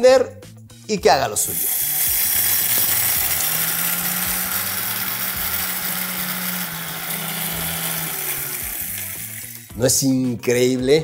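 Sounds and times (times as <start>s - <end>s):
blender grinding coffee beans: 1.4s - 9.8s.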